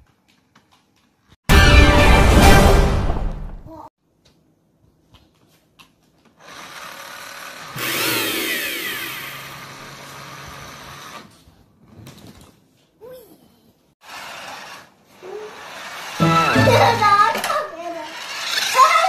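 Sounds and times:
toy car electric motor whirring: 6.4s - 11.3s, 14.0s - 19.0s.

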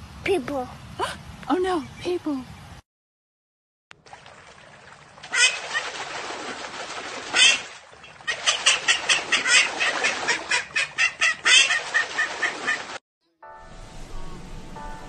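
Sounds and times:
water splashing in a tub: 3.9s - 13.0s
ducks quacking: 5.3s - 6.0s, 7.3s - 13.0s.

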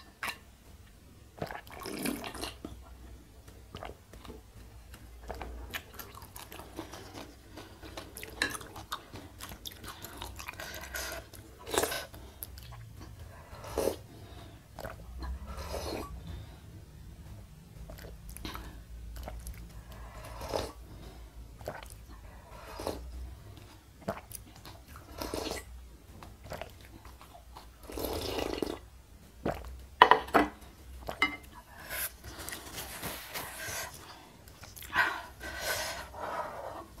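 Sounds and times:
person swallowing and chewing: 0.0s - 14.1s, 14.7s - 16.4s, 17.1s - 20.8s, 21.5s - 22.2s, 22.8s - 30.0s
person slurping broth: 19.2s - 20.8s, 21.6s - 23.1s, 25.0s - 25.7s, 27.8s - 28.8s.

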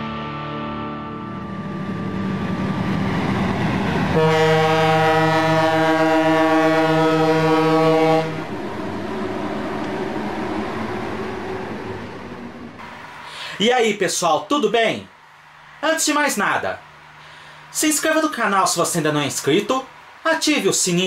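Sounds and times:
train rumble: 1.4s - 14.2s
locomotive horn blast: 4.1s - 8.6s.

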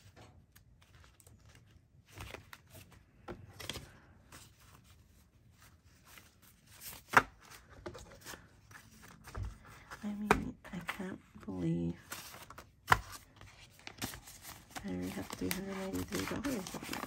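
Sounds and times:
paper banknotes crinkling: 10.8s - 17.0s.

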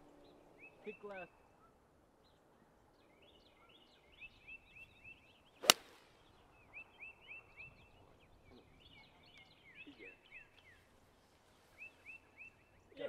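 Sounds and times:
bird singing: 0.0s - 13.0s
golf driver striking ball: 5.6s - 6.0s.

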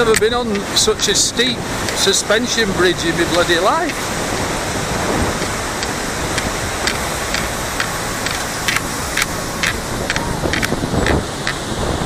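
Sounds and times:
rushing water: 0.0s - 12.0s
footsteps on bridge deck: 4.9s - 11.6s.

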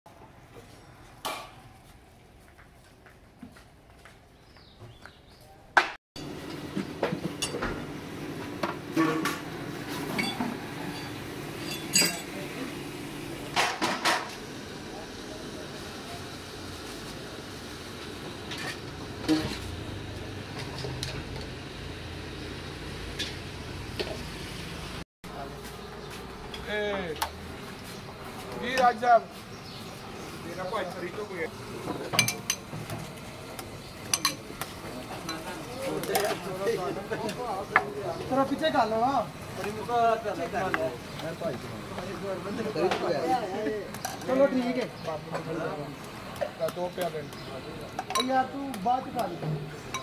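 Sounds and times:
quiet street ambience: 0.1s - 5.9s, 10.6s - 32.1s, 32.8s - 50.0s
bird chirping: 4.4s - 5.6s, 29.5s - 31.2s
steel bowl and pot clinking: 10.1s - 12.3s, 32.2s - 32.7s, 34.1s - 34.5s.

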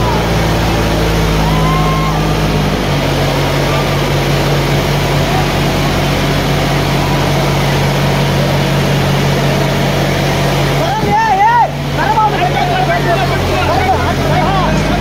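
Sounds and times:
tractor diesel engine under load: 0.0s - 15.0s.

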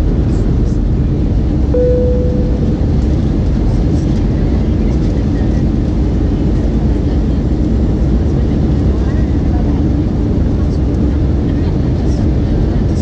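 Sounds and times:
aircraft cabin engine rush: 0.0s - 13.0s
short cabin tone: 1.8s - 3.2s.

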